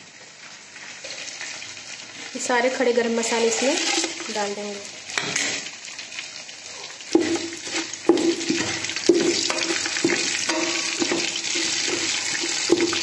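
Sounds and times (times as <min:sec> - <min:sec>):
spices sizzling in hot oil: 0:00.0 - 0:13.0
utensil knocking on metal pot: 0:08.1 - 0:11.3.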